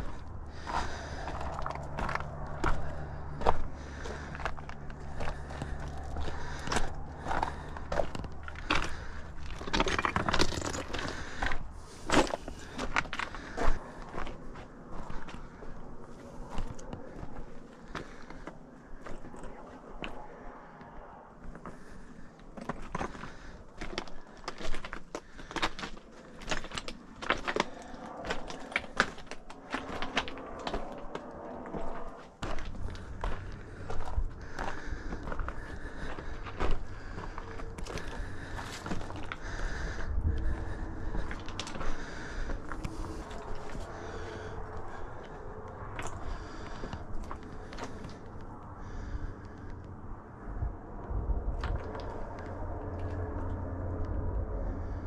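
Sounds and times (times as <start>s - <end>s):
footsteps on a trail: 0.0s - 49.8s, 51.5s - 55.0s
wind rumble on microphone: 26.4s - 55.0s.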